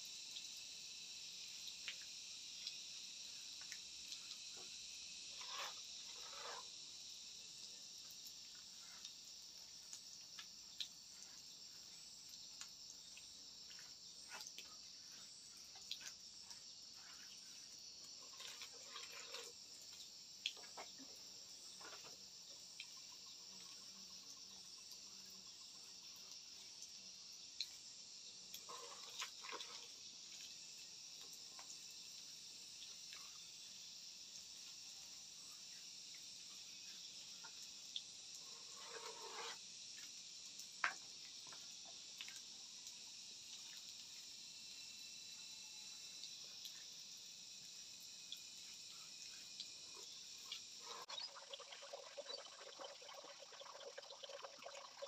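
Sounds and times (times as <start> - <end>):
insects chirping: 0.0 - 55.0.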